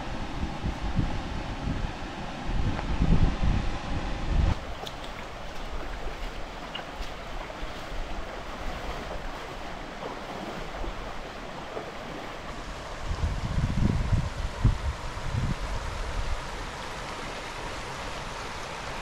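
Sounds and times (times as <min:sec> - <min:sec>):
wind buffeting microphone: 0:00.0 - 0:16.7
creek water rushing: 0:04.6 - 0:19.0.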